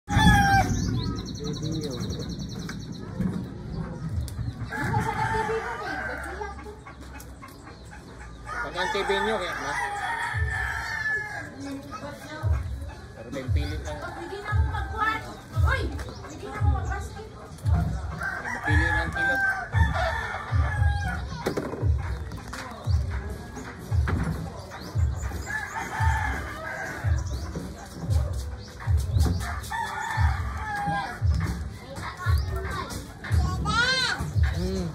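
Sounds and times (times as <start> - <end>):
regular low thuds: 12.4 - 34.9.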